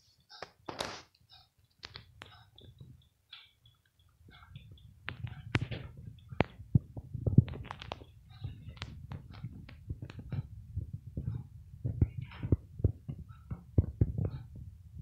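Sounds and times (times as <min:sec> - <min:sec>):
low rumble: 0:04.3 - 0:15.0.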